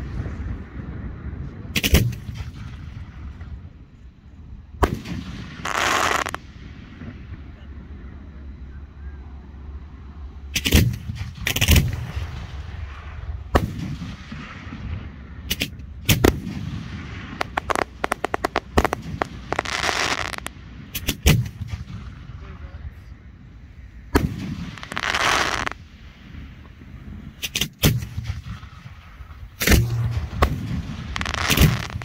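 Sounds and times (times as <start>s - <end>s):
rapid firework pops: 1.8s - 3.0s, 4.8s - 7.2s, 10.6s - 22.2s, 24.1s - 32.0s
hissing firework crackle: 4.8s - 7.3s, 10.6s - 22.4s, 24.2s - 32.0s
firework shells bursting with bangs: 4.8s - 7.4s, 10.5s - 22.4s, 24.1s - 32.0s.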